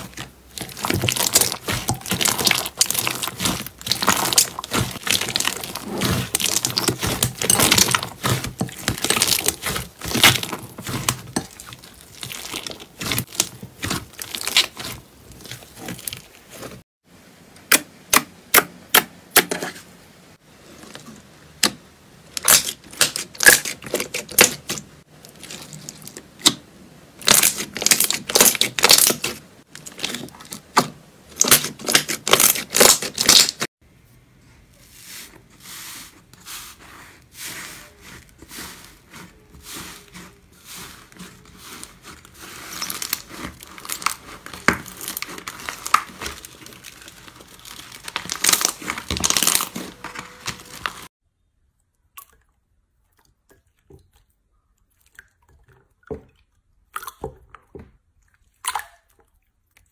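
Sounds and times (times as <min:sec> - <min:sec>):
slime crackling and popping: 0:00.0 - 0:16.7, 0:27.2 - 0:30.5, 0:31.4 - 0:33.6, 0:41.4 - 0:51.1.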